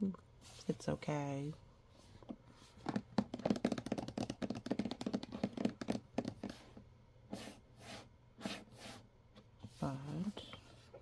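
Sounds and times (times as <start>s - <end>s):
clicks and taps on plastic case: 2.8s - 6.6s.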